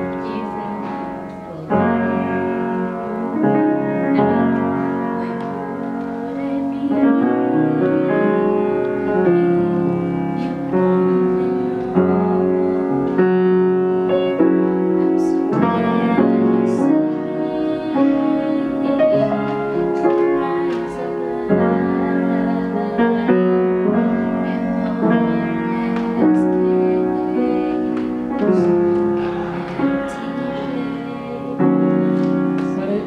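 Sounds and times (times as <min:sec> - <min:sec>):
slow piano chords: 0:00.0 - 0:33.0.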